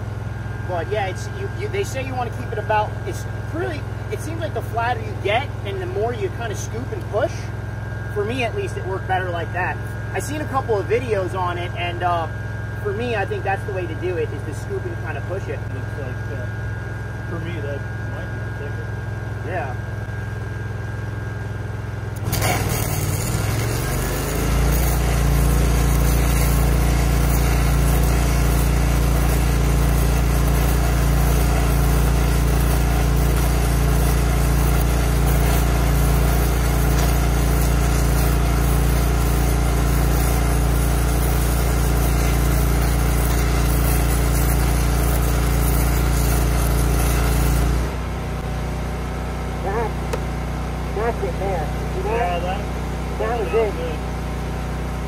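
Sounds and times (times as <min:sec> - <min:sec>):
welder engine droning: 0:00.0 - 0:55.0
arc gouging crackle and hiss: 0:00.7 - 0:07.4, 0:22.2 - 0:48.0.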